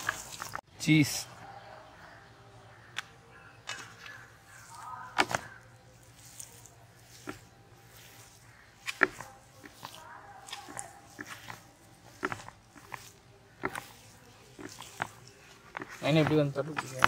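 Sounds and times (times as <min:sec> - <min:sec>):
hands squishing minced meat: 0:03.9 - 0:17.0.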